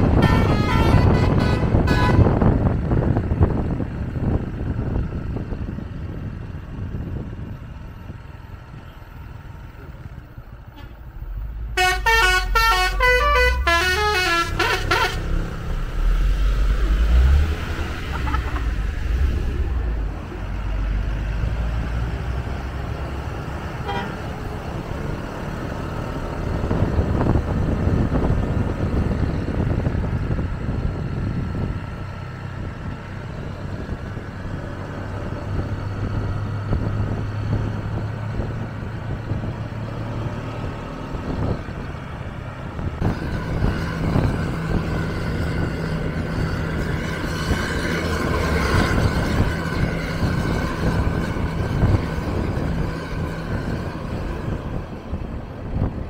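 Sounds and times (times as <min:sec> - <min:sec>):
multi-tone bus horn tune: 0:00.0 - 0:02.6, 0:10.7 - 0:11.0, 0:11.7 - 0:15.6, 0:18.0 - 0:18.9, 0:23.8 - 0:24.3
heavy vehicle rumble: 0:00.0 - 0:56.0
road traffic noise: 0:00.0 - 0:56.0.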